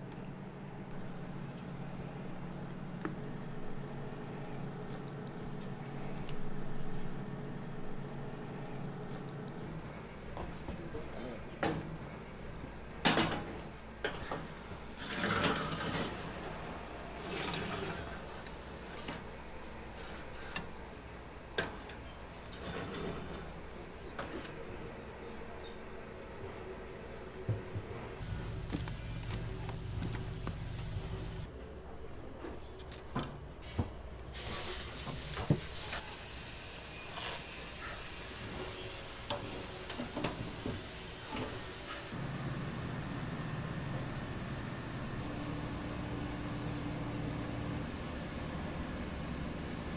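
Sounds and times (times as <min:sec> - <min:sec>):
hiss: 0:34.3 - 0:42.1.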